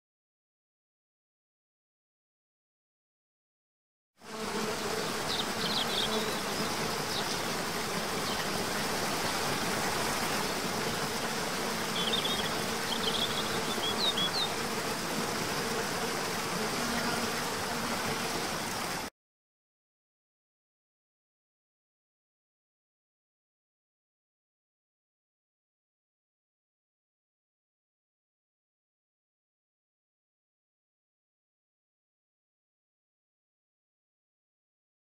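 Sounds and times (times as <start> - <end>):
faint insect-like buzz: 4.2 - 19.1.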